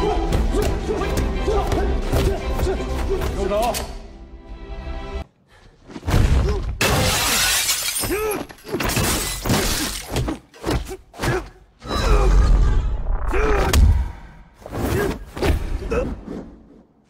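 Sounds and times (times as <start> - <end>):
glass shattering: 6.8 - 10.1.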